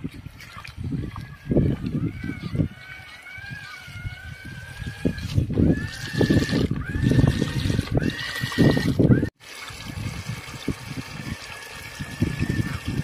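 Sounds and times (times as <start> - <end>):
electric motor whine: 1.2 - 9.3.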